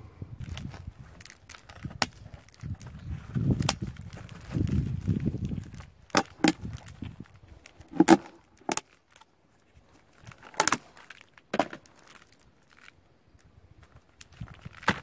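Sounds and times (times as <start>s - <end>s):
plastic bucket lid snapping: 6.1s - 6.6s, 7.9s - 8.8s.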